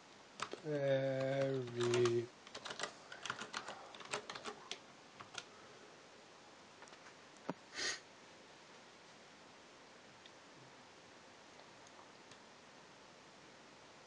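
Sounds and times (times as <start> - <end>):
brief hissing noise: 7.7 - 8.0.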